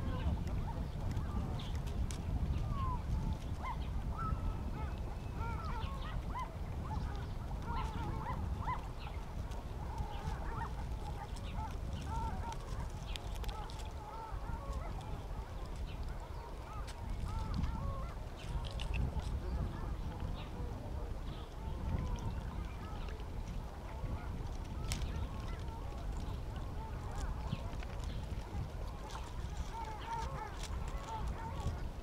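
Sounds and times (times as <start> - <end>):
waterfowl honking and quacking: 3.6 - 20.2, 23.9 - 32.0.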